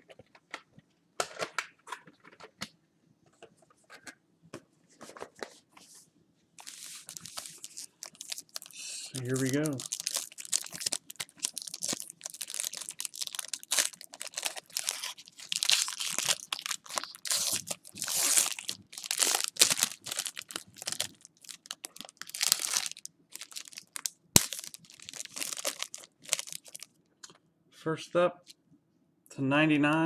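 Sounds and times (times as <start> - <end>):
plastic wrapping crinkling: 6.6 - 26.9.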